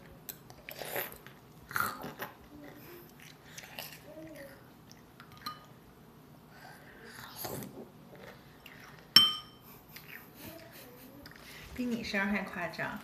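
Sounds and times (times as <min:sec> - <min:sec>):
small child eating: 0:00.0 - 0:12.0
metal spoon clinking on bowl: 0:09.2 - 0:09.6.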